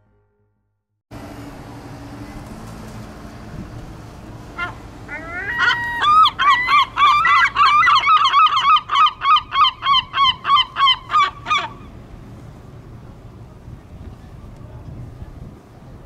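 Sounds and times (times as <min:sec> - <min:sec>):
gull calling: 0:04.6 - 0:12.0.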